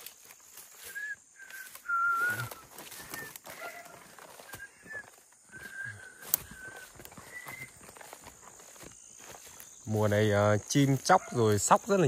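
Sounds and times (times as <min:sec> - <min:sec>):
rustling and clicks in undergrowth: 0:00.0 - 0:12.0
birds whistling: 0:00.6 - 0:10.0.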